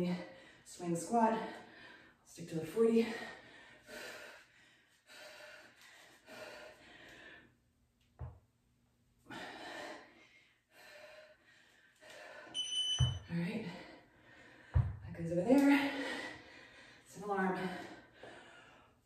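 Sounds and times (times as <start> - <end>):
high electronic beep: 12.6 - 13.2.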